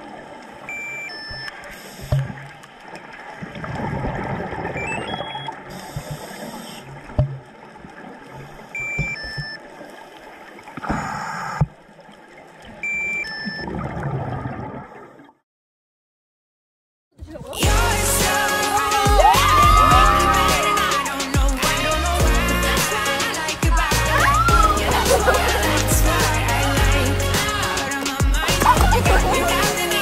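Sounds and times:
underwater bubbling water: 0:00.0 - 0:15.4
short high beeps: 0:04.8 - 0:05.5.

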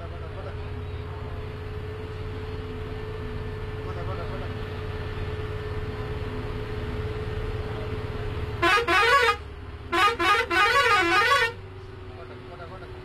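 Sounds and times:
bus engine droning: 0:00.0 - 0:13.0
bus melody air horn: 0:08.6 - 0:11.6.

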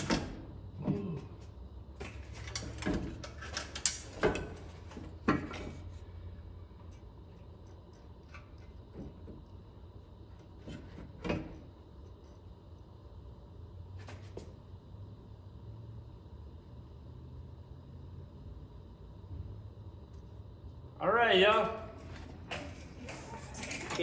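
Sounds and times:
low steady hum: 0:00.0 - 0:24.0
metal clunks and scrapes: 0:02.0 - 0:06.0.

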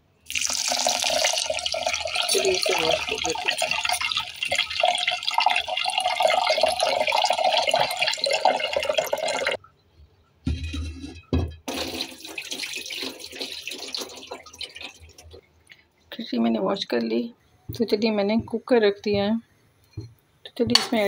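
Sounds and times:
tap water running into a pot: 0:00.3 - 0:09.6, 0:11.7 - 0:15.4.

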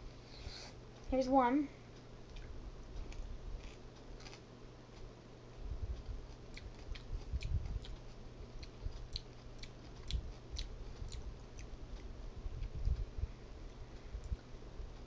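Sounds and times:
wet chewing mouth clicks: 0:06.5 - 0:11.8.

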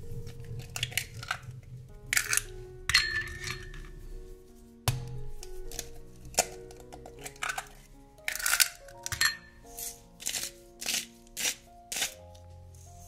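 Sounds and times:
soft background music: 0:00.0 - 0:13.0
utensil clinking on dishware: 0:02.2 - 0:03.9, 0:05.7 - 0:11.0.

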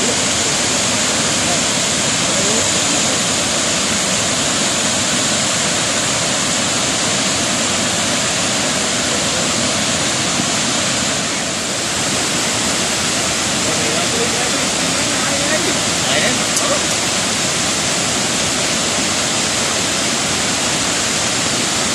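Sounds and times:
water pouring over dam spillway: 0:00.0 - 0:21.9.

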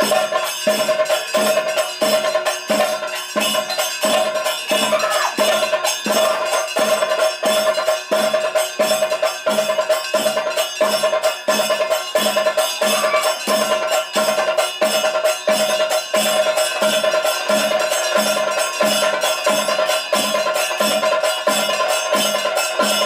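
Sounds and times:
ritual drum beat: 0:00.0 - 0:23.0
steady ringing tone: 0:00.0 - 0:23.0.

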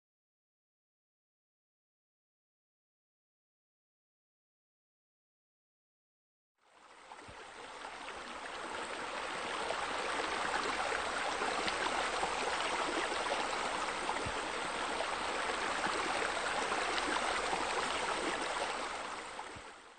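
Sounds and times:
water rushing and splashing: 0:07.3 - 0:19.9.

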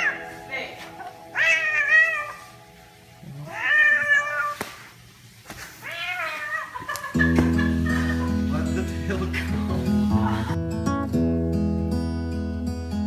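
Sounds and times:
acoustic guitar music: 0:00.0 - 0:03.6, 0:07.1 - 0:13.0
cat meowing: 0:01.3 - 0:02.5, 0:03.4 - 0:04.6, 0:05.8 - 0:06.8.

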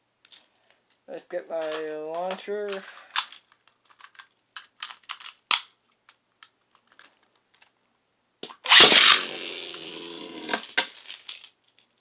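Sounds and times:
launcher gear rasp and whir: 0:08.6 - 0:10.1.

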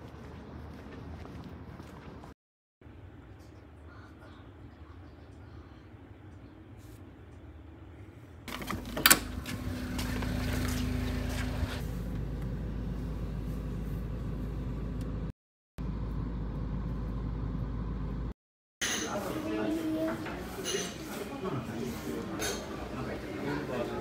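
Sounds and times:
car engine rumbling inside cabin: 0:09.3 - 0:18.4.

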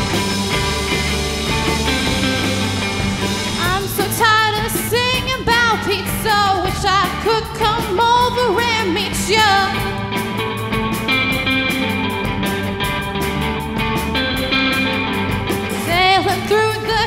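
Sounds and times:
bass guitar: 0:00.0 - 0:17.0
drums: 0:00.0 - 0:17.0
electric guitars: 0:00.0 - 0:17.0
girl singing lead: 0:03.6 - 0:10.0, 0:15.8 - 0:17.0.

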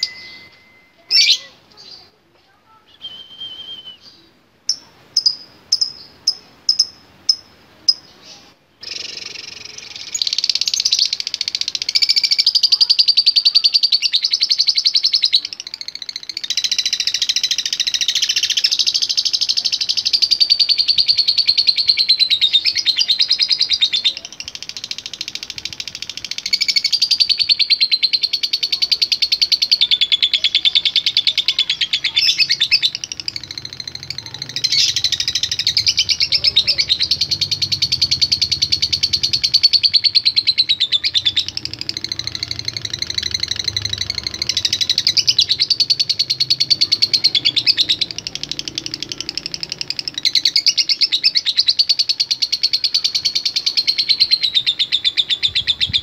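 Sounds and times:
lovebird chattering song: 0:00.0 - 0:02.1, 0:04.0 - 0:56.0.

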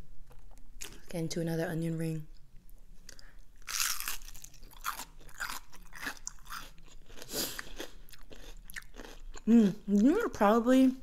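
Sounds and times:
chewing crunches: 0:03.1 - 0:09.5
biting crisp onion ring: 0:03.1 - 0:10.1.

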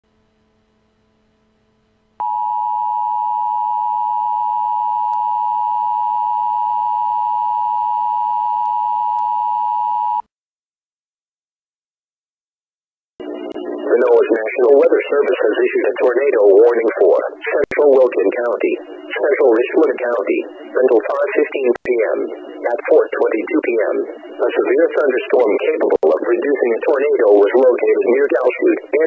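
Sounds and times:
loud steady electronic alert tone: 0:13.2 - 0:29.0.

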